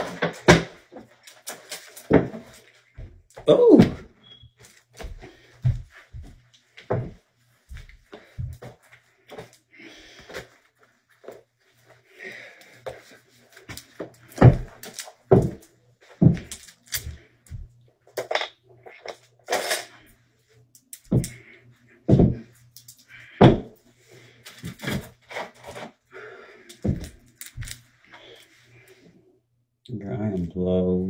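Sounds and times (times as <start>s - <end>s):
faint scuffing: 4.3s - 9.6s.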